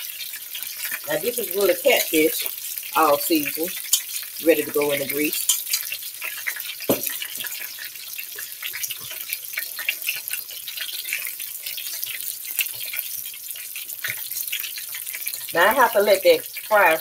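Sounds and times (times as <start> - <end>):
fish sizzling in hot oil: 0.0 - 17.0
knock: 6.9 - 7.1.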